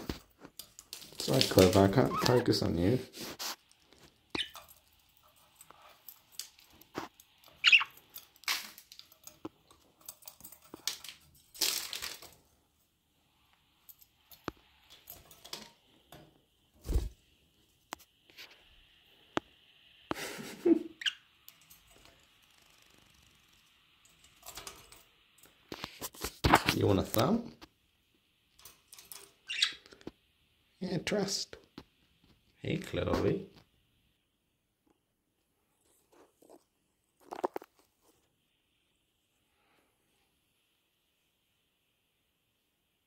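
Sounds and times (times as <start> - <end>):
clicks and rustles: 0.0 - 2.5, 3.2 - 12.6, 13.5 - 17.1, 21.4 - 27.7, 35.9 - 38.3
budgerigar chirping: 7.6 - 7.9.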